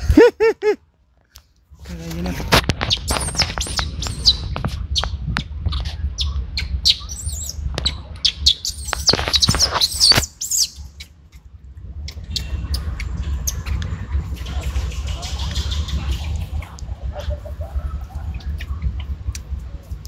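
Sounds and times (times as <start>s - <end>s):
steady low rumble: 0.0s - 20.0s
animal chirps and squeaks: 2.8s - 11.1s, 14.4s - 19.2s.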